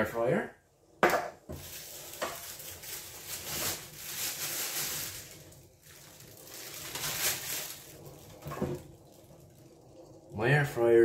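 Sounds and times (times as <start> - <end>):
juices sloshing in bag: 1.5 - 10.1
plastic bag crinkling: 1.5 - 10.4.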